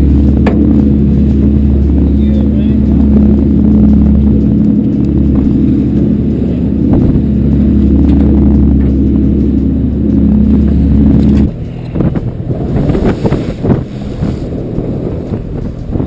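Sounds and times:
boat engine droning: 0:00.0 - 0:16.0
waves splashing against hull: 0:00.0 - 0:16.0
wind buffeting microphone: 0:00.0 - 0:16.0.

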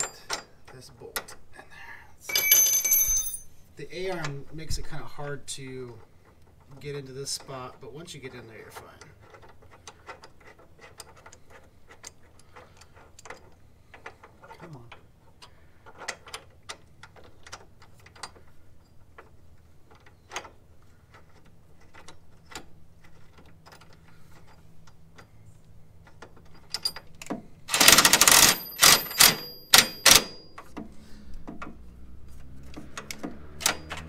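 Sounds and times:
hand ratchet clicking: 0:26.0 - 0:30.8.

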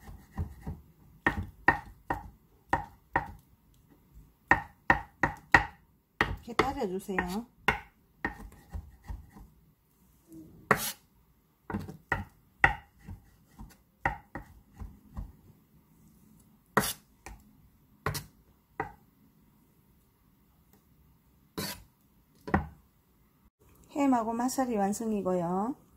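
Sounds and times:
knife tapping on wooden board: 0:04.5 - 0:09.4, 0:11.7 - 0:15.3, 0:18.8 - 0:19.0.

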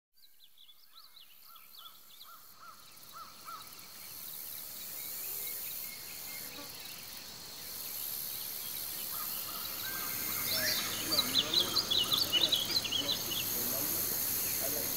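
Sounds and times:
high insect drone: 0:00.9 - 0:14.9
pulsing insect buzz: 0:02.3 - 0:14.9
bird rising and falling calls: 0:09.0 - 0:13.6.

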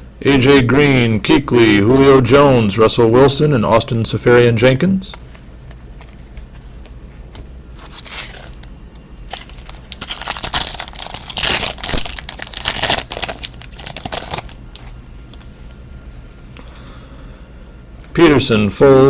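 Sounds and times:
foil wrapper crinkling and tearing: 0:07.8 - 0:15.0.

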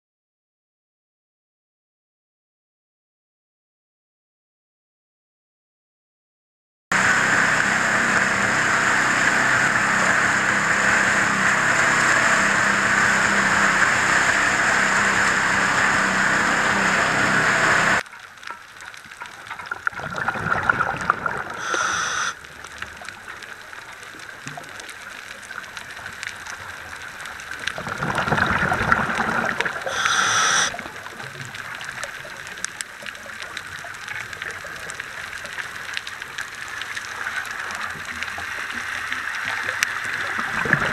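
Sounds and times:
diver's exhaled bubbles: 0:19.7 - 0:22.4, 0:27.7 - 0:31.0, 0:40.2 - 0:40.9
loud underwater rushing: 0:19.9 - 0:22.4, 0:27.7 - 0:30.8, 0:40.3 - 0:40.9
water hiss: 0:21.2 - 0:22.5, 0:27.9 - 0:32.0.

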